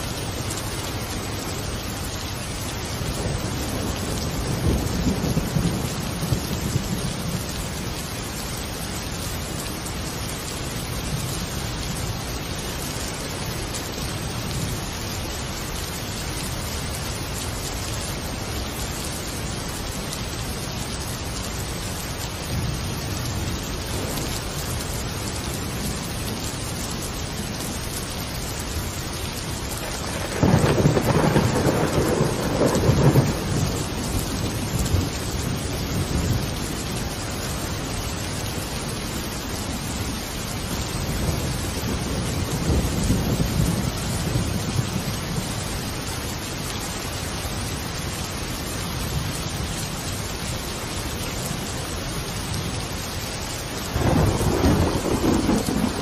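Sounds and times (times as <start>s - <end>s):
steady rain: 0.0s - 56.0s
thunder rumbling: 3.1s - 7.5s, 29.8s - 36.9s, 41.2s - 45.5s, 53.9s - 56.0s.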